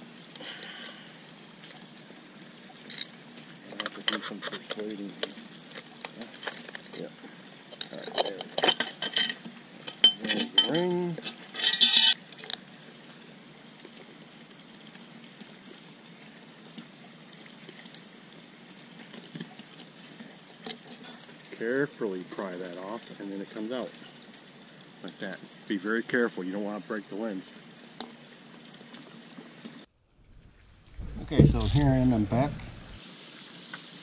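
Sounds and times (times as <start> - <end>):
screwdriver scraping metal: 11.6 - 12.2.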